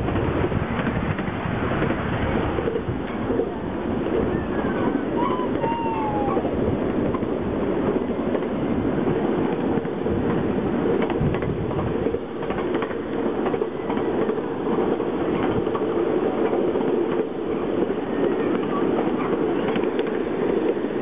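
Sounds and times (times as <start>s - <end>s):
train rumbling: 0.0s - 21.0s
wheels clicking over rails: 6.4s - 20.8s.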